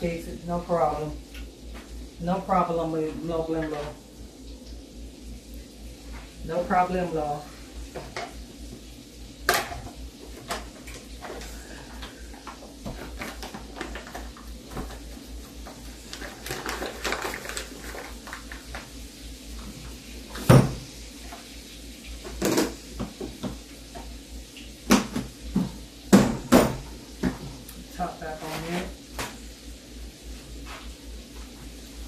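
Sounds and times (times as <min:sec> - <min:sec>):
pots and utensils clanking: 0:07.9 - 0:08.4, 0:09.4 - 0:18.8, 0:22.2 - 0:24.1.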